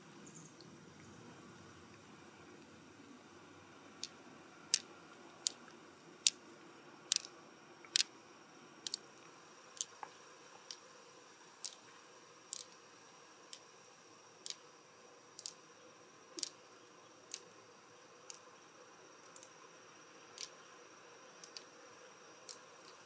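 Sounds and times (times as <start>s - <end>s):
light sharp clicks: 7.1s - 8.1s, 21.4s - 21.7s.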